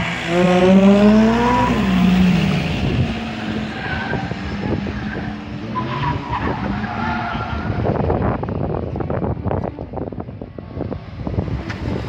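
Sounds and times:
car engine revving: 0:00.0 - 0:08.4.

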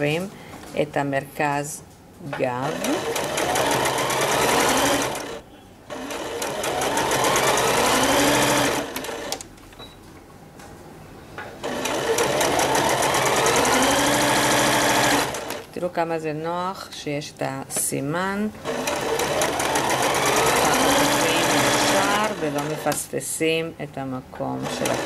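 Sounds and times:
sewing machine motor whine: 0:02.6 - 0:09.4, 0:11.6 - 0:15.6, 0:18.6 - 0:23.0, 0:24.6 - 0:25.0
sewing needle ticking: 0:11.7 - 0:15.6, 0:18.7 - 0:23.0.

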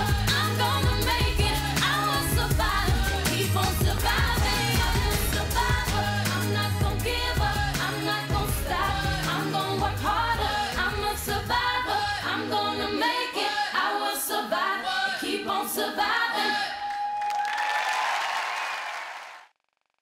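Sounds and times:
heavy bass beat: 0:00.0 - 0:11.2
pop song with singing voice: 0:00.0 - 0:16.9.

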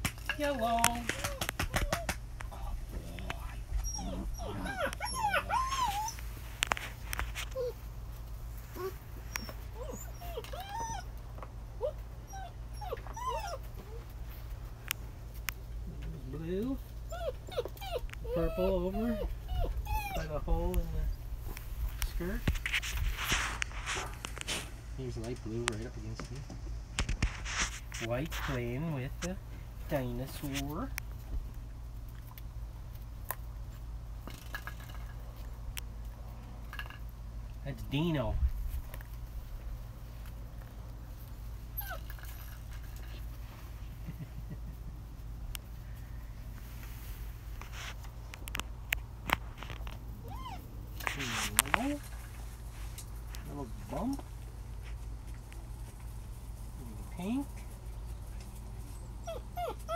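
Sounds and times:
steady low hum: 0:00.0 - 0:59.9
puppies whining and yipping: 0:01.0 - 0:02.3, 0:03.6 - 0:07.9, 0:08.7 - 0:14.1, 0:16.6 - 0:21.3, 0:41.6 - 0:43.2, 0:50.1 - 0:52.0, 0:58.8 - 0:59.9
steady low rumble: 0:01.9 - 0:10.3, 0:13.5 - 0:34.2, 0:35.0 - 0:41.8
puppies scuffling with a toy: 0:16.3 - 0:31.4, 0:40.1 - 0:44.0, 0:45.9 - 0:48.5, 0:49.3 - 0:59.9.

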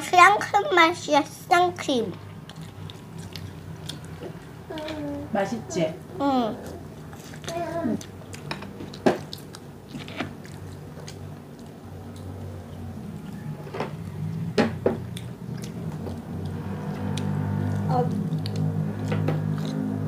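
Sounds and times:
people chewing crispy chicken: 0:02.2 - 0:04.6, 0:06.6 - 0:20.0.

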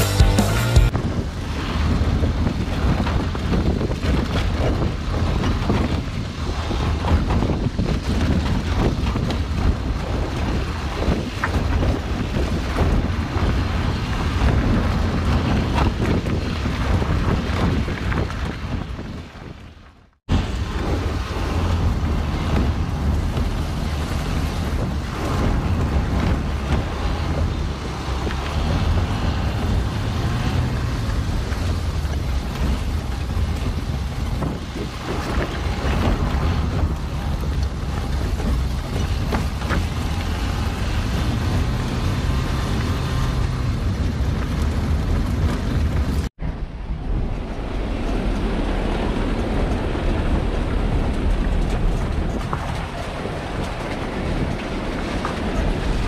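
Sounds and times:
vehicle driving over gravel: 0:00.0 - 0:56.0
wind buffeting microphone: 0:00.9 - 0:56.0.

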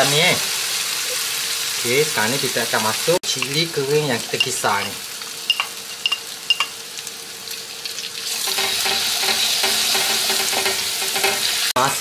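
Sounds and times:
chilli paste sizzling in oil: 0:00.0 - 0:12.0
spatula scraping wok: 0:08.3 - 0:11.7.

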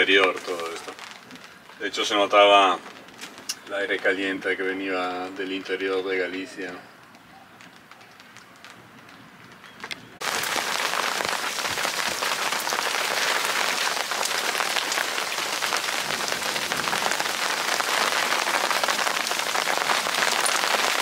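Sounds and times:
heavy rain falling: 0:00.0 - 0:03.8, 0:10.2 - 0:21.0.

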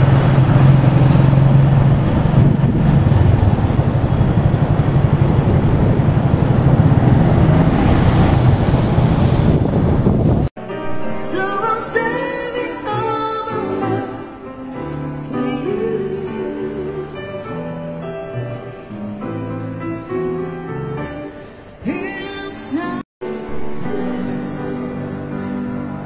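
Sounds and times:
motorcycle wind and road noise: 0:00.0 - 0:10.5
piano accompaniment: 0:00.0 - 0:26.0
woman singing with vibrato: 0:10.9 - 0:17.8, 0:21.8 - 0:23.0.

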